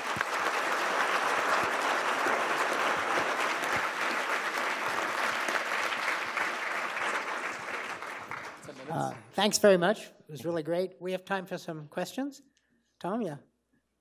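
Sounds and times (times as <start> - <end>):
audience applauding: 0.0 - 9.4.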